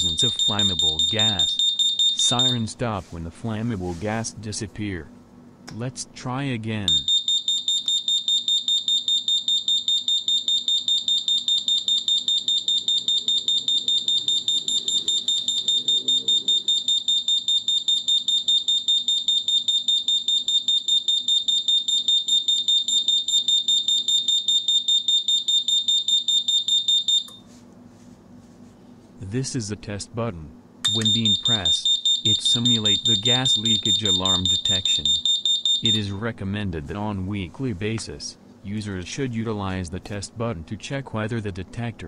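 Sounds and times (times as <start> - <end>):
gas detector alarm beeping: 0.0 - 2.7, 6.8 - 27.4, 30.8 - 36.2.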